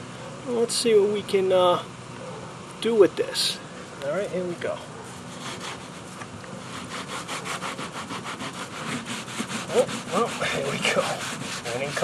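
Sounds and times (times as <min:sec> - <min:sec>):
sponge scrubbing a surface: 0:05.1 - 0:12.0.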